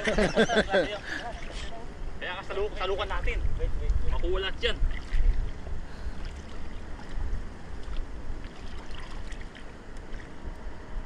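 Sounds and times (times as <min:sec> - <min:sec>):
wind rumbling on microphone: 0:01.3 - 0:11.0
water splashing around legs: 0:04.8 - 0:10.4.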